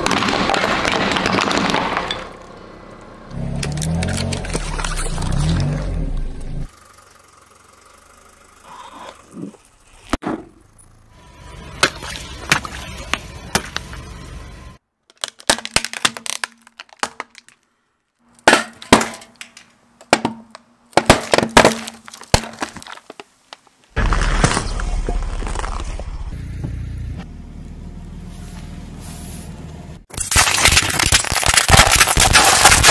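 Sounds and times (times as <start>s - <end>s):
tyre crushing brittle objects: 0.0s - 2.3s, 3.3s - 5.9s, 15.0s - 17.6s, 18.4s - 26.0s, 30.1s - 32.9s
cans being crushed: 15.1s - 17.6s, 30.2s - 32.9s.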